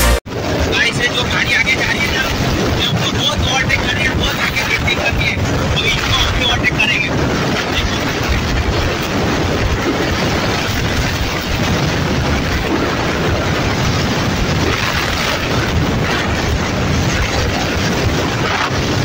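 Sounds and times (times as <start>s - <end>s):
wind buffeting microphone: 0.3s - 19.0s.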